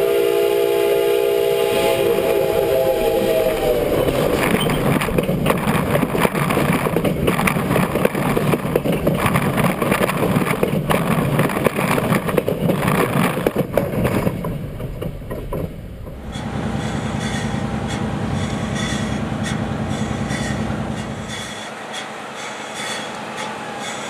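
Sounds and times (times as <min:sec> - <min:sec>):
train rumble: 0:00.0 - 0:24.0
train wheels clattering on rails: 0:02.1 - 0:24.0.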